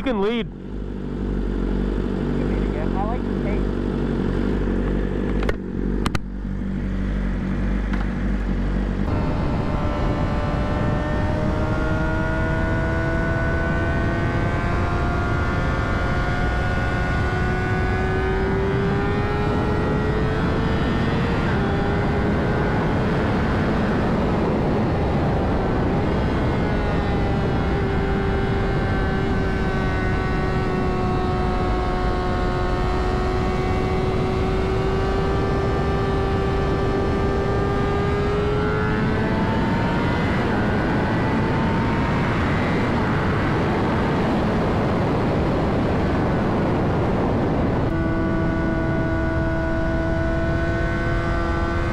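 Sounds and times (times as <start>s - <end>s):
motorcycle engine at high revs: 0.0s - 51.9s
wind rushing: 9.0s - 32.2s, 38.1s - 51.9s.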